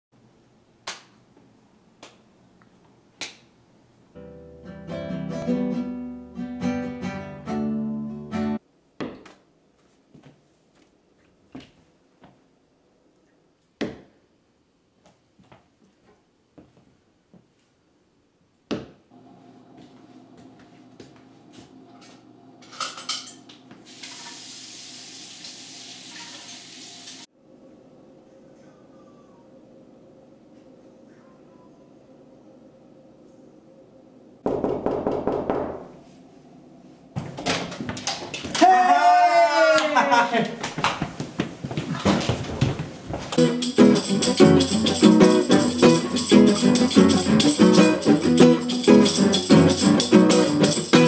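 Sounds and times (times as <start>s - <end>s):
acoustic guitar plucking: 4.2s - 8.6s, 43.4s - 51.0s
dishes clinking in a sink: 22.6s - 24.4s.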